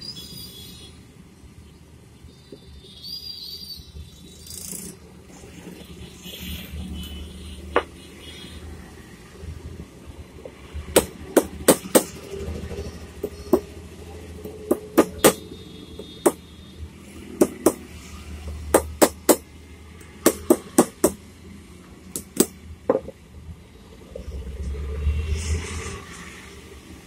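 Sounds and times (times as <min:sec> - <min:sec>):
hammer knocking on metal: 0:14.7 - 0:15.4, 0:17.4 - 0:17.9, 0:18.7 - 0:19.4, 0:20.2 - 0:21.2, 0:22.2 - 0:23.2.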